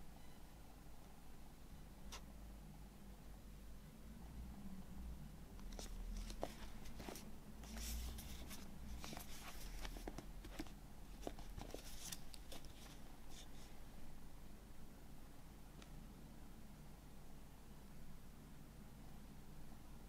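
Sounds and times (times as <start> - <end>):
cardboard rustling and scraping: 5.7 - 13.7.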